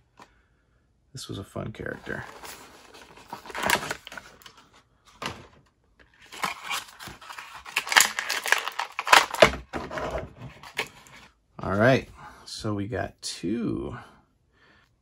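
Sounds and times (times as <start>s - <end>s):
plastic blister crackling: 6.3s - 9.6s.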